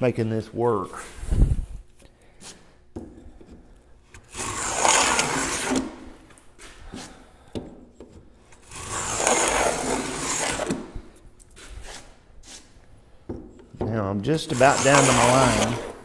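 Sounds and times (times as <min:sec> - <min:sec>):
plane shaving wood: 0:03.3 - 0:07.2, 0:08.5 - 0:11.1, 0:14.4 - 0:16.0.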